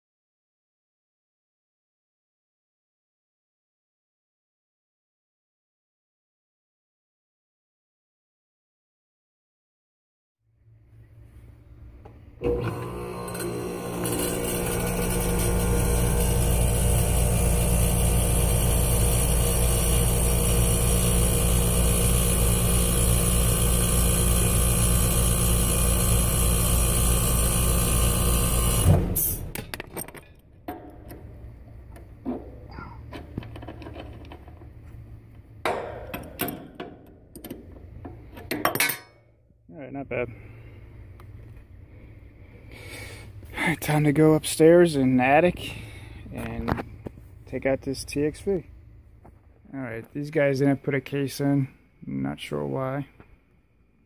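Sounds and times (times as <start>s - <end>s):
compressor humming: 11.9s - 29.6s, 30.7s - 38.6s
condenser fan spinning: 12.4s - 28.9s.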